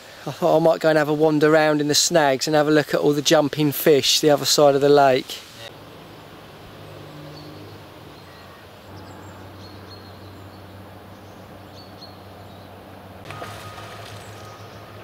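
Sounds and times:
background hiss: 0.0 - 15.0
steady low hum: 5.7 - 15.0.

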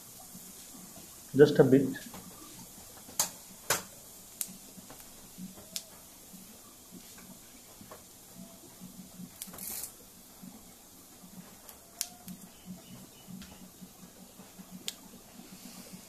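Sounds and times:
seeds sizzling in hot oil: 0.0 - 16.0
sharp crackles and pops: 0.2 - 15.5.

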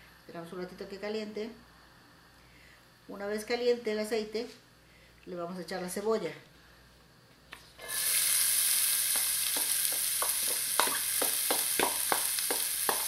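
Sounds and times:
onion sizzling in hot oil: 7.8 - 13.0.

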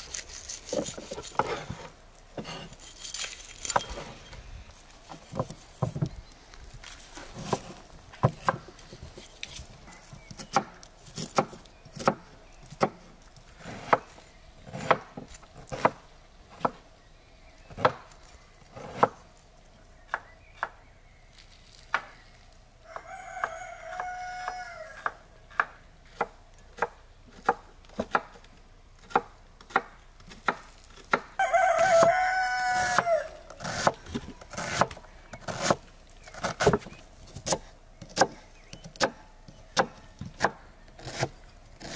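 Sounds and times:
knife chopping on wooden board: 10.3 - 14.1, 14.7 - 16.8, 39.8 - 41.9
rooster crowing: 22.8 - 25.2, 31.4 - 33.6.

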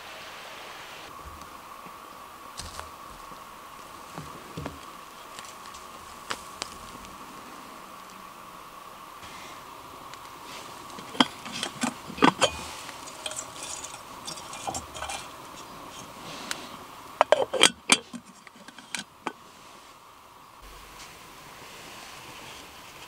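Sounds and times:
kettle lid and handle clinking: 10.9 - 16.1, 17.2 - 19.4.

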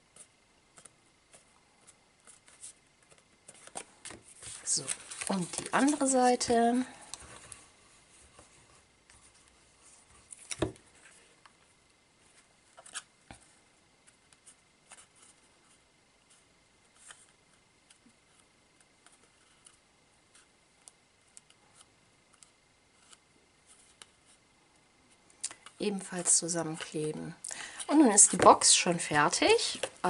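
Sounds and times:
paper rustling: 0.2 - 7.6.

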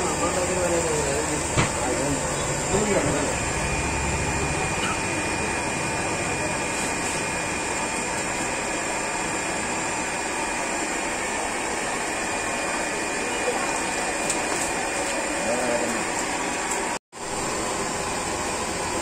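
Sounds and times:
thin high whine: 0.0 - 11.5
aeration blower whirring: 0.0 - 19.0.

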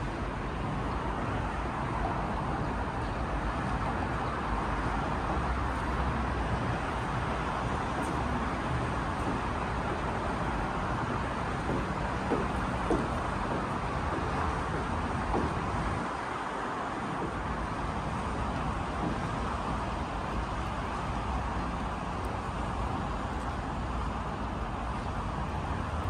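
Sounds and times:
road traffic noise: 0.0 - 26.0.

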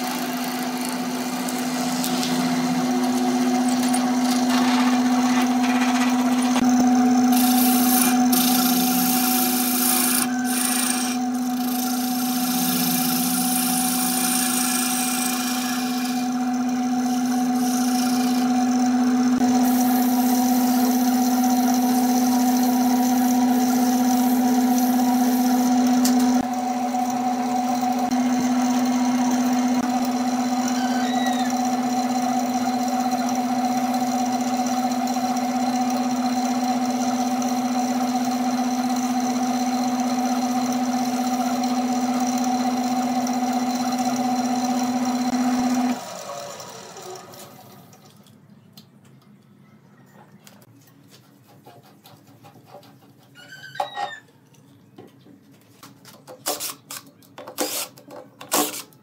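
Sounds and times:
drill bit cutting wood: 0.0 - 5.6, 6.2 - 46.2, 57.6 - 57.9
wood lathe motor hum: 0.0 - 48.0.

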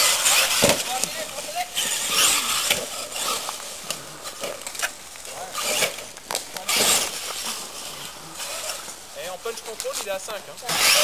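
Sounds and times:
toy truck motor whining: 0.0 - 1.0, 1.7 - 3.6, 4.7 - 8.9, 10.6 - 11.0.

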